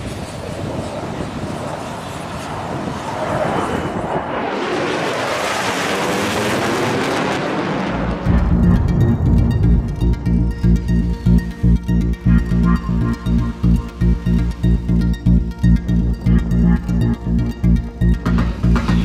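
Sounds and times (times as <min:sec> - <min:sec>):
jet aircraft engine roar: 0:00.0 - 0:09.9.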